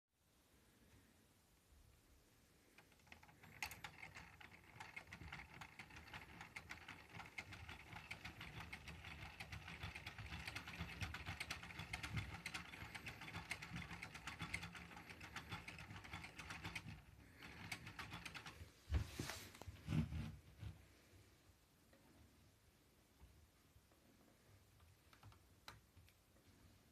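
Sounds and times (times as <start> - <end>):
plastic gears clicking: 2.7 - 18.6.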